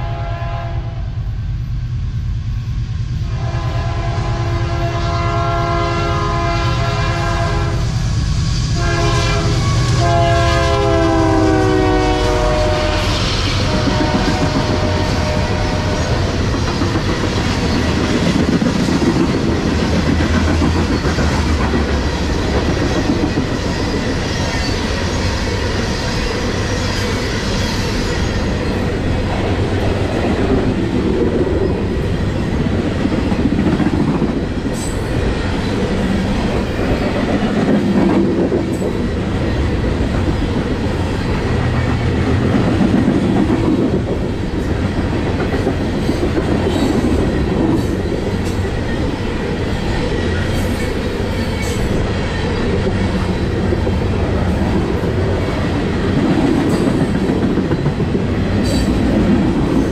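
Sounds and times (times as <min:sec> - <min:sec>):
locomotive horn blasts: 0:00.0 - 0:01.1, 0:03.3 - 0:07.9, 0:08.8 - 0:16.2
train wheels clickety-clack: 0:05.6 - 0:59.9.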